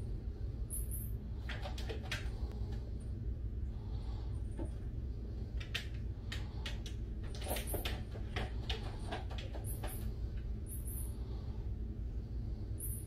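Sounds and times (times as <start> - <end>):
low steady hum: 0.0 - 13.0
paws tapping on screen: 5.6 - 10.2.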